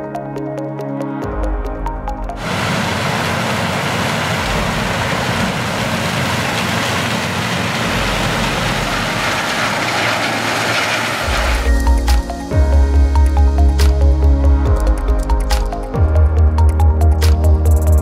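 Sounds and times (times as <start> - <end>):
combine harvester diesel engine: 2.3 - 14.1
threshing machinery: 2.4 - 12.6.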